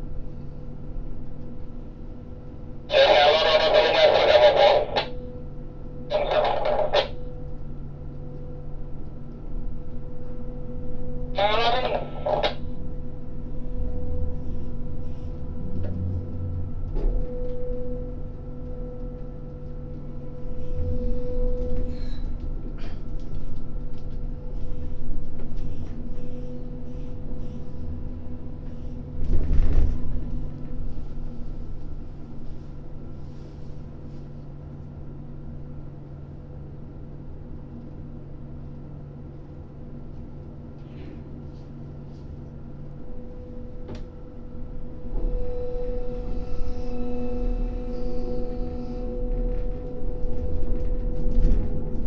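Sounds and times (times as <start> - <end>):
crane machinery humming: 0.0 - 52.0
low rumble: 12.9 - 21.6.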